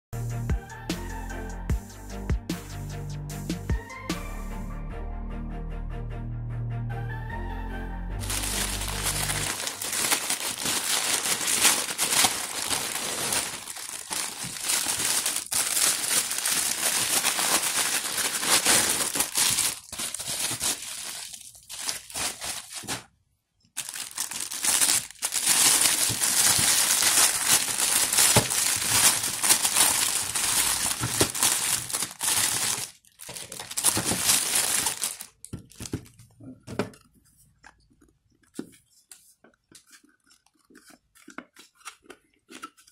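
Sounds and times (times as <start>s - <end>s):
plastic packaging crinkling: 8.2s - 23.1s, 23.8s - 36.2s.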